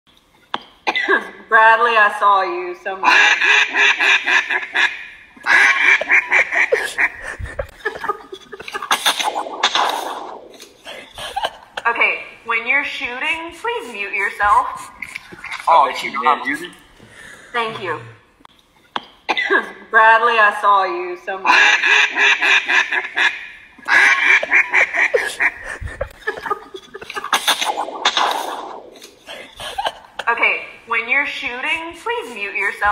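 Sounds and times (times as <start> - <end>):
duck call quacks: 3.1 - 7.2, 21.5 - 25.7
sharp noisy cracks: 27.4 - 29.0.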